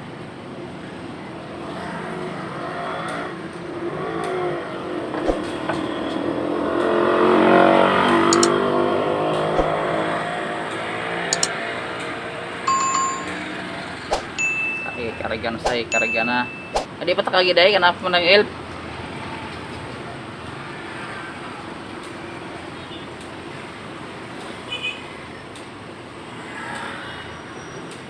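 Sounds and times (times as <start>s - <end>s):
traffic engines: 0.0s - 28.0s
vehicle accelerating: 1.6s - 14.4s.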